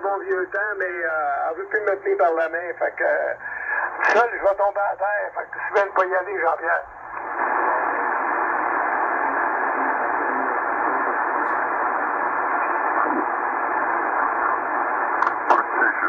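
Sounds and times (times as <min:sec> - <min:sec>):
radio static hiss: 0:00.0 - 0:16.0.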